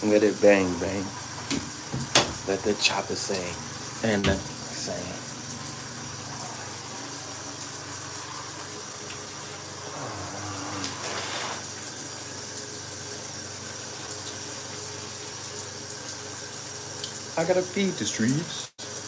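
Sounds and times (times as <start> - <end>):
shower water spraying: 0.0 - 19.0.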